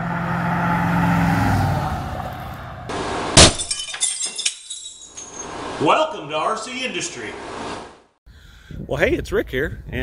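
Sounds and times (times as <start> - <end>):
car driving past: 0.0 - 3.0
glass breaking: 3.4 - 5.6
glass pieces tinkling: 3.6 - 5.5.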